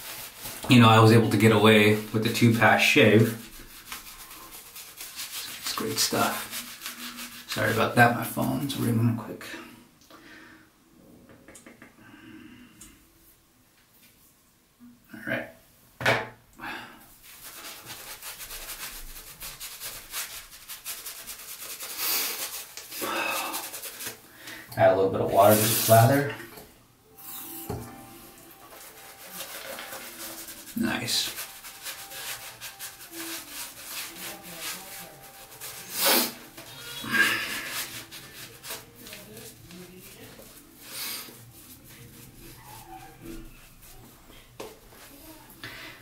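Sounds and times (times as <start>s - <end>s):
shaving brush swishing on skin: 0.0s - 8.8s, 17.2s - 24.3s, 25.2s - 26.3s, 27.2s - 45.4s.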